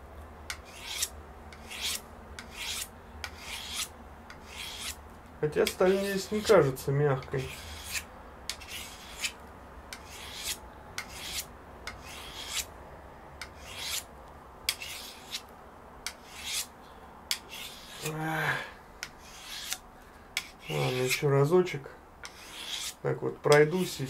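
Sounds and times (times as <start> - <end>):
knife rasping on sharpening stone: 0.6 - 5.0, 7.4 - 12.7, 13.5 - 14.1, 14.7 - 15.4, 16.1 - 16.7, 17.3 - 18.2, 19.1 - 19.8, 20.4 - 21.2, 22.2 - 23.0.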